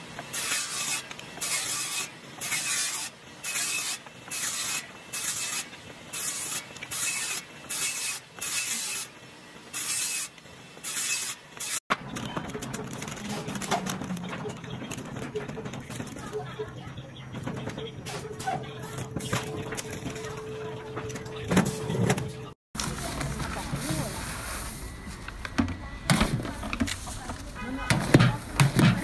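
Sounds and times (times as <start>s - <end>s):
power saw cutting wood: 0.2s - 9.1s, 9.7s - 11.8s.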